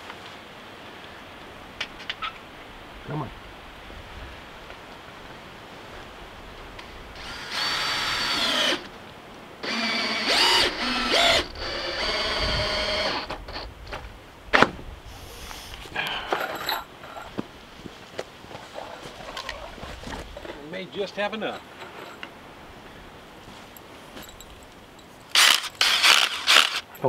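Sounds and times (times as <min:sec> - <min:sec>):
cordless drill driving screws: 0:07.2 - 0:08.9, 0:09.6 - 0:13.7, 0:25.3 - 0:26.9.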